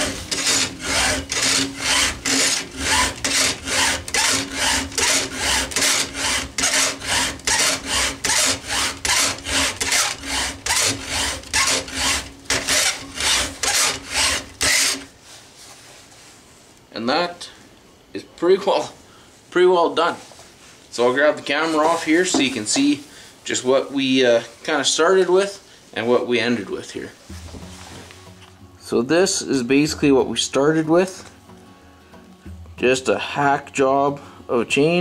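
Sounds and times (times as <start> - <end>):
file rasping on chainsaw chain: 0.0 - 15.1.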